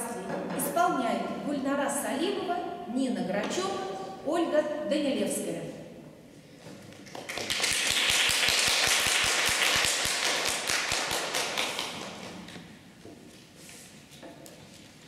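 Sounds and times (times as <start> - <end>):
close hand clapping: 6.9 - 12.5
audience applauding: 7.1 - 12.3.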